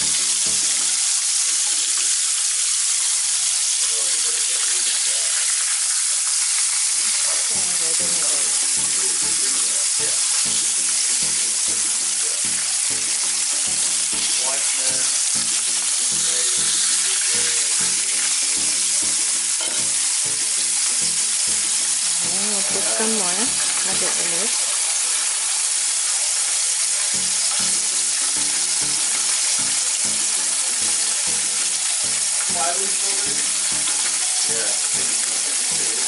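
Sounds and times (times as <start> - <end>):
chicken sizzling in hot oil: 0.0 - 36.0.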